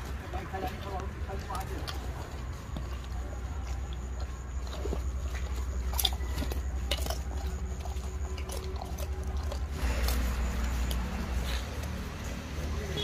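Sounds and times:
bears crunching peanuts: 0.0s - 12.8s.

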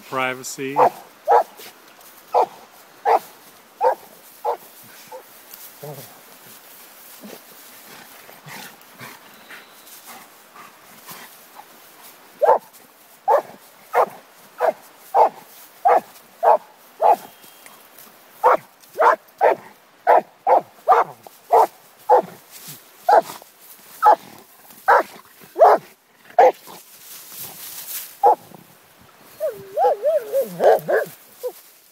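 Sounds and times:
dog barking: 0.8s - 1.6s, 2.3s - 5.2s, 12.4s - 12.7s, 13.3s - 17.3s, 18.4s - 22.3s, 23.1s - 23.3s, 24.0s - 24.2s, 24.9s - 26.6s, 29.4s - 31.1s.

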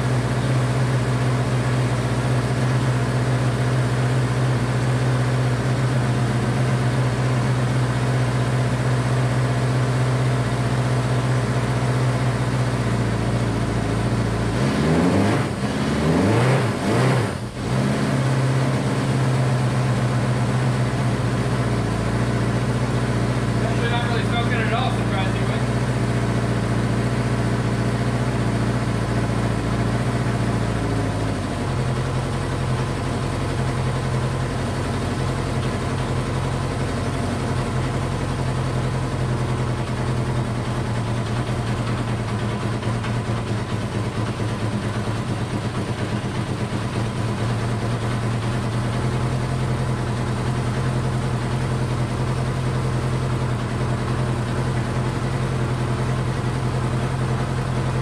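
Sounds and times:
motorcycle engine fast idle: 31.5s - 58.0s.

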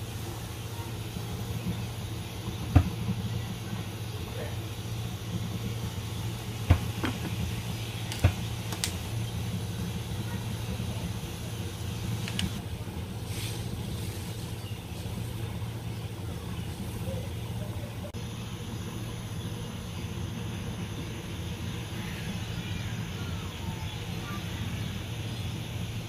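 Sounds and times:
gas burner hum: 0.0s - 26.0s
water boiling in pan: 0.0s - 26.0s
light clicks: 12.2s - 12.6s.

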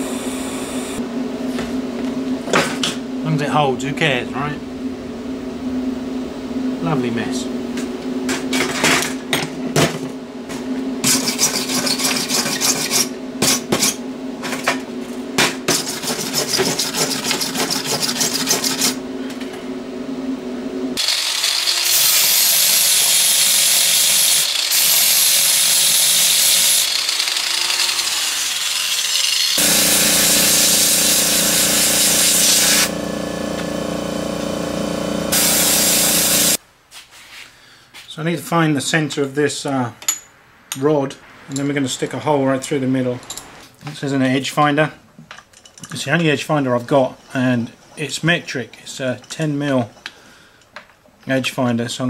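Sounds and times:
steady hum: 0.0s - 11.3s, 18.2s - 21.0s, 29.6s - 36.8s
angle grinder grinding steel: 21.0s - 36.6s.

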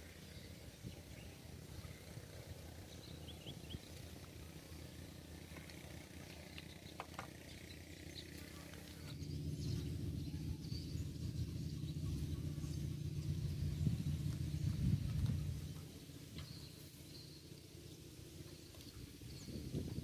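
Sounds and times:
wind rumble on microphone: 0.5s - 2.2s, 9.2s - 16.8s, 18.8s - 20.0s.

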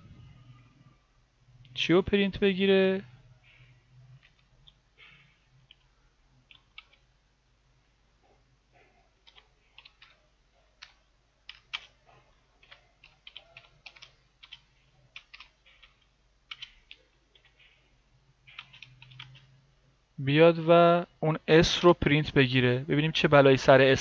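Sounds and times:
computer keyboard typing: 3.6s - 7.1s, 9.2s - 17.8s, 18.4s - 19.5s.

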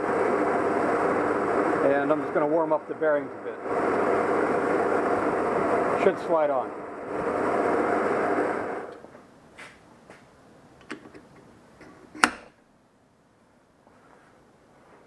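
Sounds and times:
heater fan blowing: 0.0s - 10.3s.

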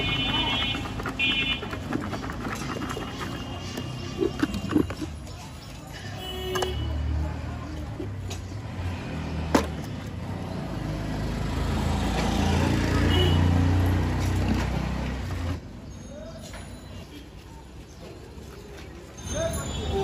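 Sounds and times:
vehicle engine rumbling: 0.0s - 15.9s.

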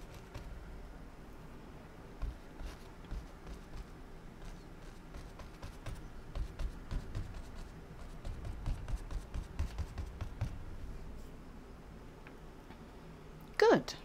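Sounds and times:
paintbrush tapping on canvas: 2.2s - 3.9s, 5.1s - 10.6s.

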